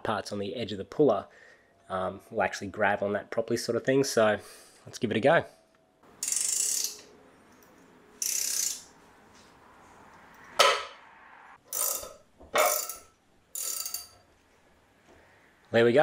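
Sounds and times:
socket ratchet clicking: 0:06.2 - 0:07.1, 0:08.2 - 0:08.9.

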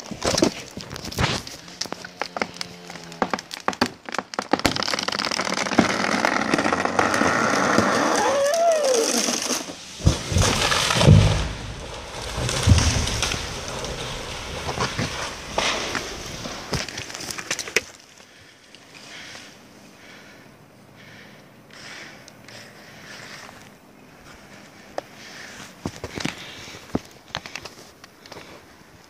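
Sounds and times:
breaking limbs cracking: 0:00.0 - 0:18.8
tree falling with wood cracking: 0:00.0 - 0:19.2
heavy thuds of trunk hitting ground: 0:10.0 - 0:16.8.

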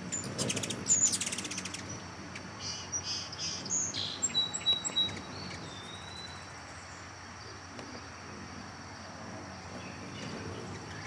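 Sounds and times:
hummingbird chips and twitters: 0:00.0 - 0:06.5
faint outdoor background: 0:00.0 - 0:11.0.

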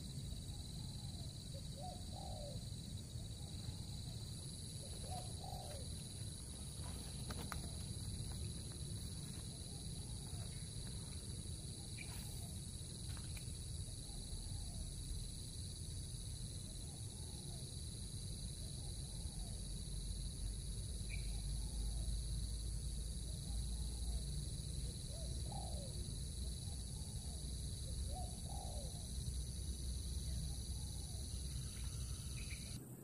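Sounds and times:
high insect drone: 0:00.0 - 0:33.0
birds cooing: 0:01.8 - 0:02.6, 0:04.8 - 0:06.0, 0:25.1 - 0:25.9, 0:28.1 - 0:29.0.

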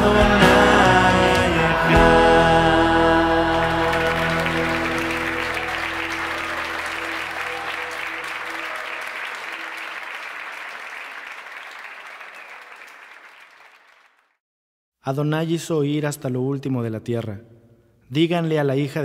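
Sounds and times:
band holding a chord: 0:00.0 - 0:08.0
audience applause: 0:01.2 - 0:14.3.

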